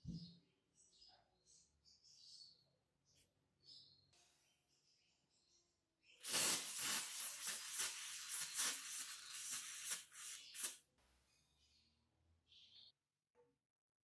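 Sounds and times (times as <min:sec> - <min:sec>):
aerosol can spraying hiss: 0:06.2 - 0:10.8.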